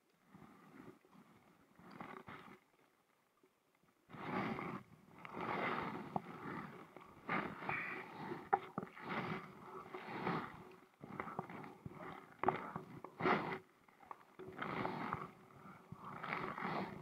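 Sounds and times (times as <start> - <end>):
kayak paddle strokes in water: 4.0 - 17.0.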